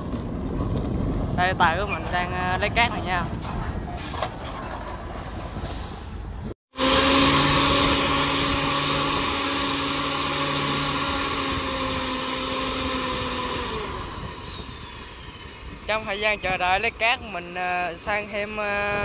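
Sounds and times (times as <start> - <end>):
crane machine drone with whine: 6.8 - 16.6.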